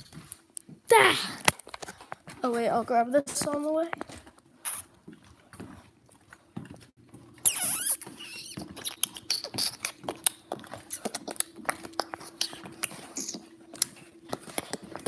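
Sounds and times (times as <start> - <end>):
faint steady hum: 0.0 - 15.0
sharp high squeak: 7.4 - 9.9.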